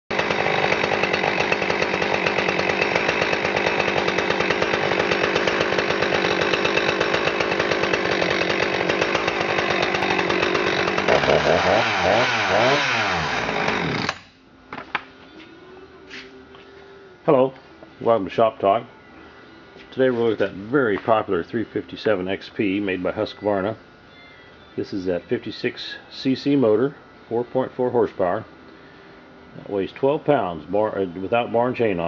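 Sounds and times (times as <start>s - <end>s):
chainsaw engine revving: 0.1s - 14.3s.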